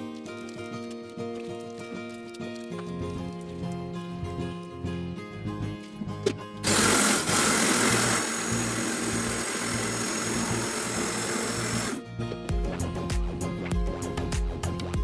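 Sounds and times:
background music: 0:00.0 - 0:15.0
blender grinding: 0:06.6 - 0:12.0.

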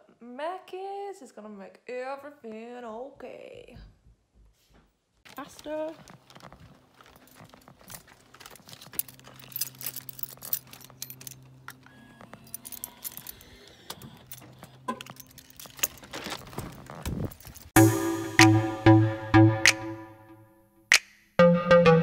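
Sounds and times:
keys jingling in a lock: 0:06.3 - 0:17.8.

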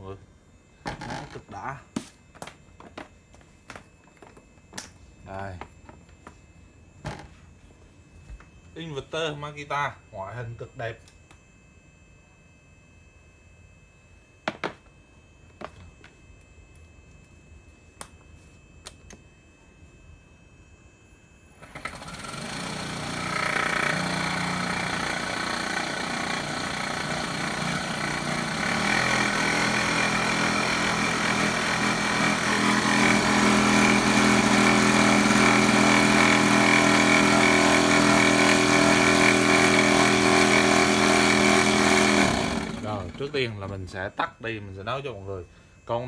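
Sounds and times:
air compressor motor humming: 0:00.0 - 0:11.3, 0:20.9 - 0:46.0.

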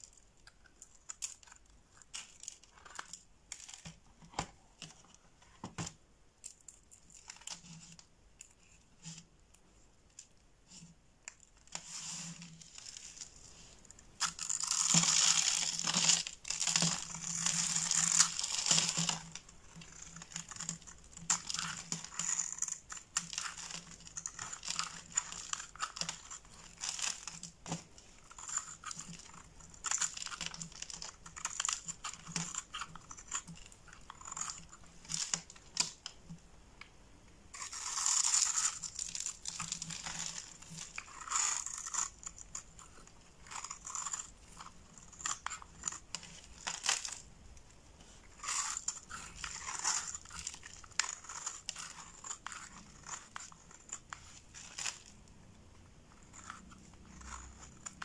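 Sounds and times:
knife blade scraping soap: 0:14.2 - 0:27.4, 0:28.2 - 0:34.8, 0:37.6 - 0:47.2, 0:48.3 - 0:55.0, 0:56.1 - 0:58.0.

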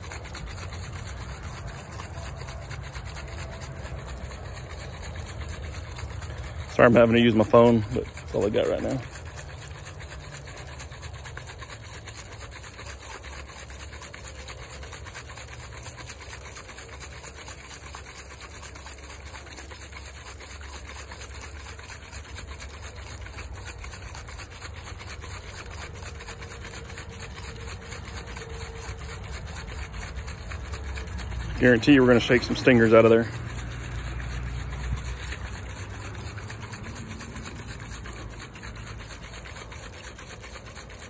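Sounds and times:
jar being swirled and handled: 0:00.0 - 0:41.0
road noise rumble: 0:31.0 - 0:39.0.

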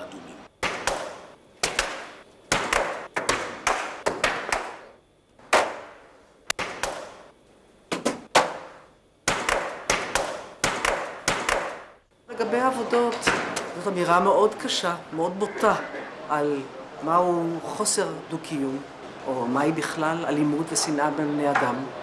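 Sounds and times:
sharp slapping strikes with echo: 0:00.6 - 0:07.3, 0:07.9 - 0:12.0.

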